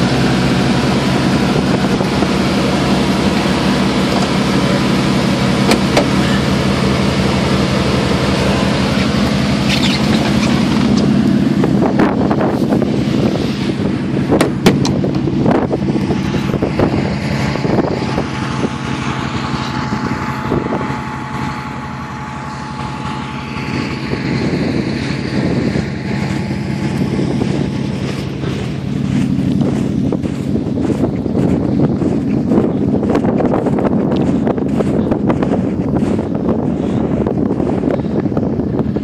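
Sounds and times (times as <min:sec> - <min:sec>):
engine running: 0:00.0 - 0:39.0
wind buffeting microphone: 0:00.0 - 0:39.0
sharp knocks: 0:14.4 - 0:15.0.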